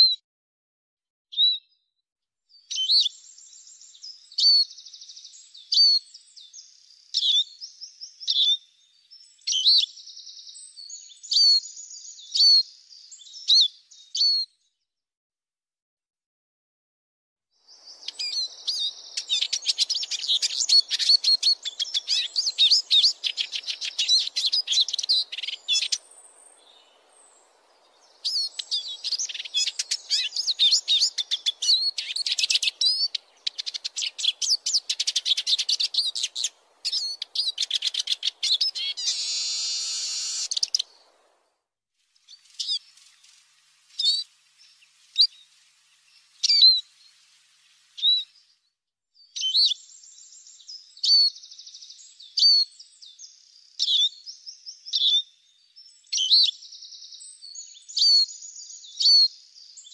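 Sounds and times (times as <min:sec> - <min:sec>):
bird twittering song: 0:01.3 - 0:01.8, 0:02.5 - 0:14.8, 0:17.6 - 0:41.4, 0:42.2 - 0:59.9
bird call notes: 0:17.9 - 0:27.0, 0:28.1 - 0:41.1.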